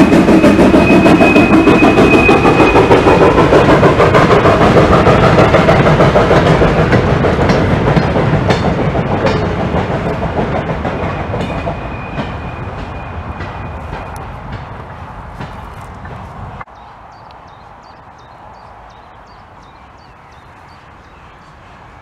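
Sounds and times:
train wheels clattering over rails: 0.0 - 16.7.

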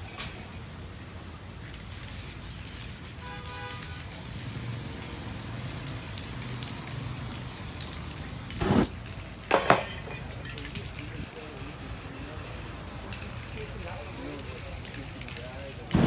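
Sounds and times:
spray paint can hissing: 1.8 - 9.0, 10.6 - 16.0.

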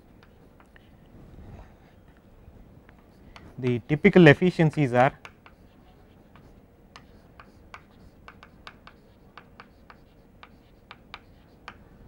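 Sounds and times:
chalk writing on chalkboard: 5.1 - 12.0.

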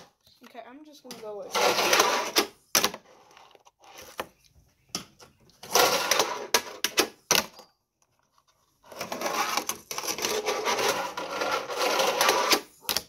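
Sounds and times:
fingerboard rolling and rattling: 1.1 - 4.4, 5.6 - 13.0.

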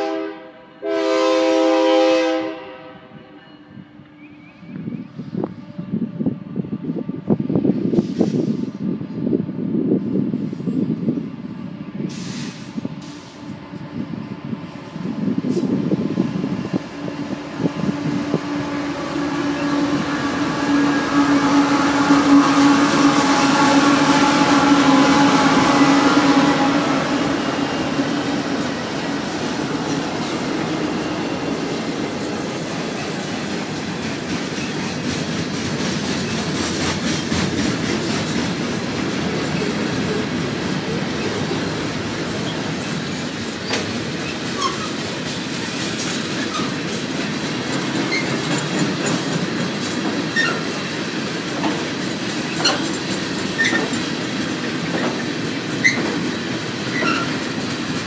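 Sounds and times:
train wheels rumbling on rail: 0.0 - 58.0
locomotive engine drone: 12.9 - 35.7
clicking over rail joints: 42.3 - 58.0
high wheel squeals: 42.4 - 45.0, 48.1 - 49.2, 50.4 - 50.9, 52.5 - 54.0, 56.9 - 57.5.

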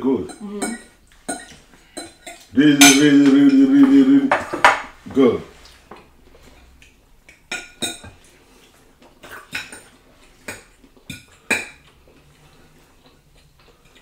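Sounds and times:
cutlery clinking on plates: 0.2 - 5.0, 7.4 - 8.3.

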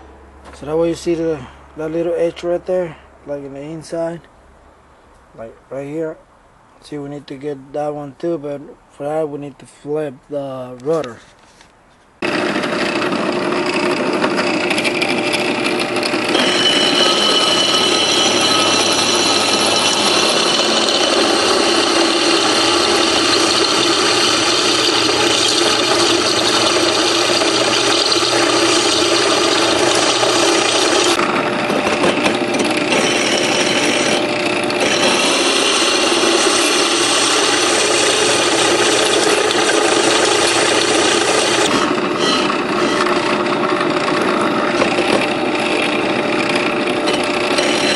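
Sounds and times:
electric drill cutting into metal: 12.2 - 47.9.

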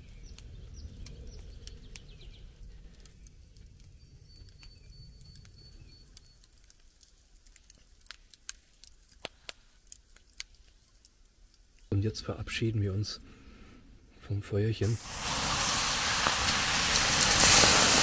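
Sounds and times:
embers crackling and popping: 0.0 - 18.0.

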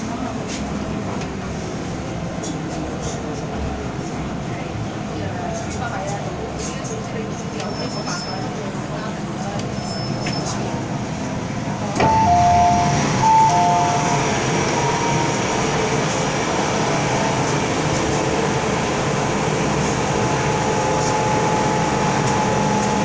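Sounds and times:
train running hum: 0.0 - 23.0
two-note door chime: 12.0 - 14.4.

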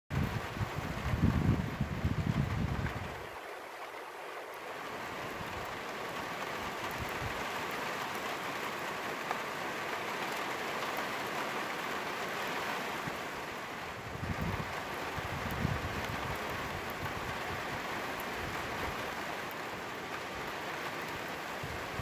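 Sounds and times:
wind buffeting microphone: 0.1 - 3.4, 6.8 - 7.5, 13.9 - 19.2
rain on a flat roof: 0.1 - 22.0.

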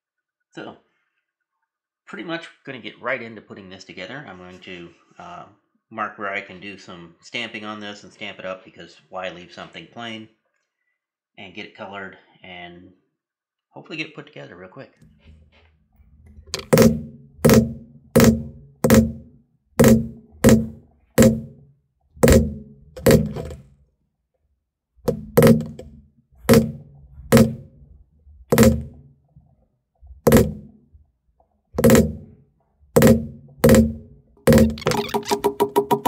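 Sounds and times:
mallet striking leather stamp: 16.5 - 21.6, 22.2 - 23.6, 25.1 - 27.7, 28.5 - 29.0, 30.3 - 30.8, 31.8 - 32.3, 33.0 - 36.0.

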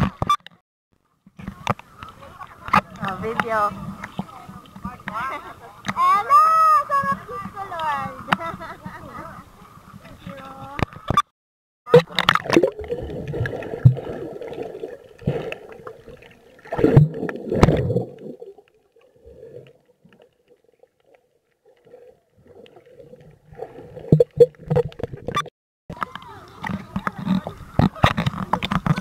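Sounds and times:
water sloshing underwater: 0.0 - 6.2, 11.9 - 29.0.

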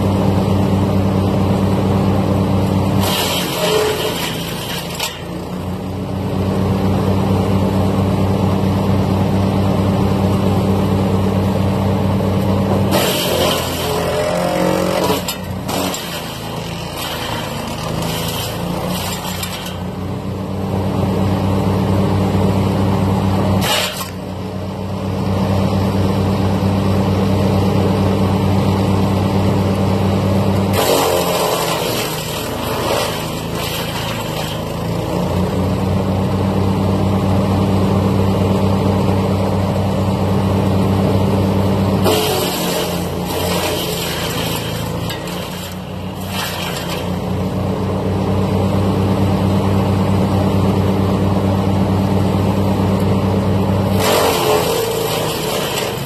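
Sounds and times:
wood chipper engine running: 0.0 - 56.0
branches being shredded: 3.0 - 5.4, 12.9 - 19.8, 30.7 - 35.0, 42.0 - 47.3, 53.9 - 56.0.

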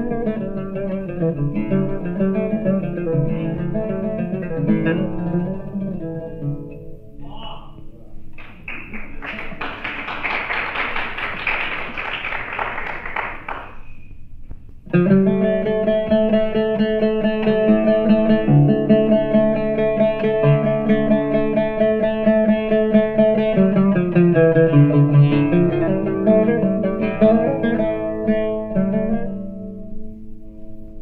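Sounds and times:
solo oud melody: 0.0 - 7.4, 14.8 - 31.0
audience applause: 8.4 - 13.8.

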